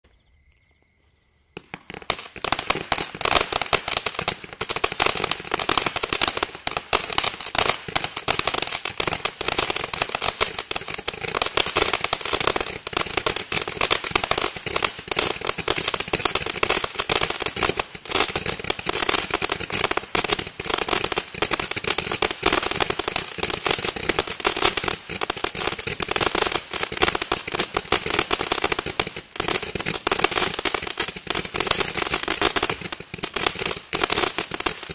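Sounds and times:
firework fountain crackling: 0:01.6 - 0:34.9.

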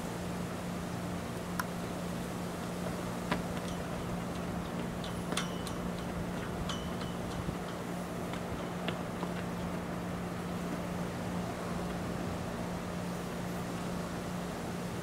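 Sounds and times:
low hum: 0:01.7 - 0:14.6.

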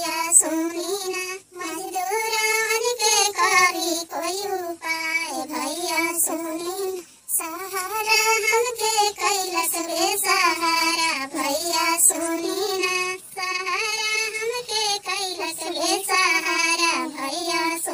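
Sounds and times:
person singing sad song: 0:00.0 - 0:17.9.

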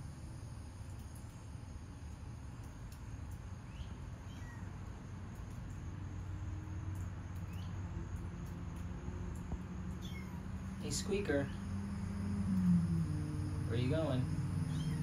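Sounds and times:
faint high-pitched chirps: 0:10.0 - 0:10.4, 0:13.7 - 0:15.0.

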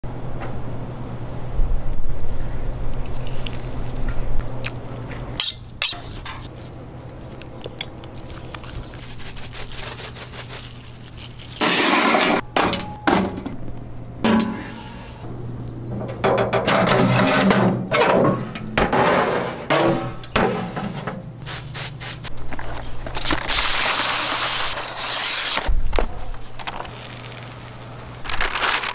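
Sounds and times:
charcoal clinking and rattling: 0:25.7 - 0:28.9.

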